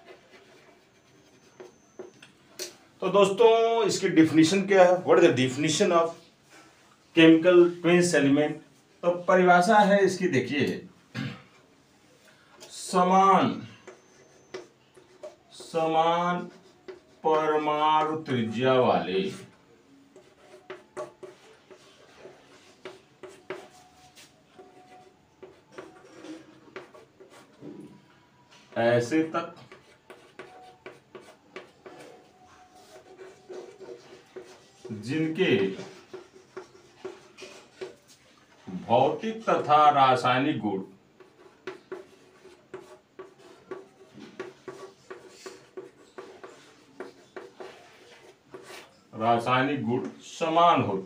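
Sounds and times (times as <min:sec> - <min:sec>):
chalk tapping and scratching: 0:00.0 - 0:02.8, 0:12.5 - 0:18.6, 0:19.2 - 0:27.8, 0:28.6 - 0:39.9, 0:41.1 - 0:50.2.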